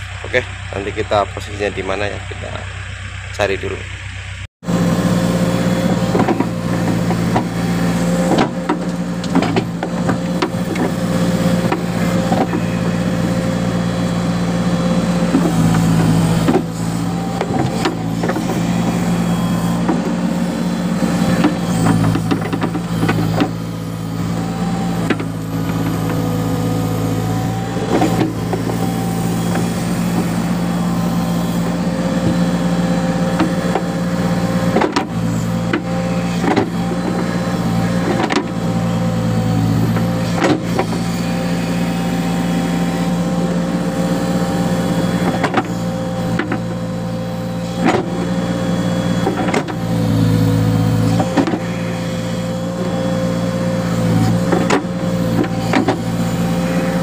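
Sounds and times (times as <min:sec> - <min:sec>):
diesel engine running: 0:00.0 - 0:57.0
hydraulics whine: 0:00.0 - 0:57.0
bucket and arm clunks: 0:05.6 - 0:57.0.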